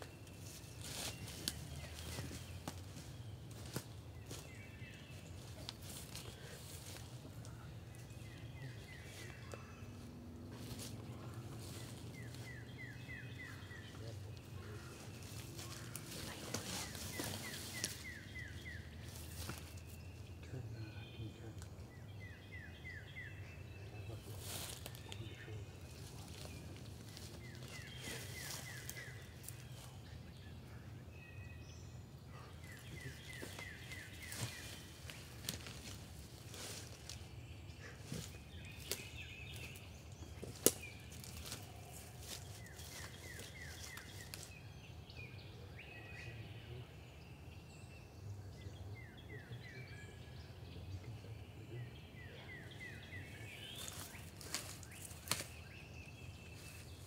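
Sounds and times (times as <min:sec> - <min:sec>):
footsteps crunching dry leaves: 0:00.0 - 0:20.3, 0:24.0 - 0:30.1, 0:32.6 - 0:44.7, 0:53.0 - 0:57.0
twigs snapping: 0:33.0 - 0:37.3, 0:38.1 - 0:44.6, 0:53.8 - 0:55.7.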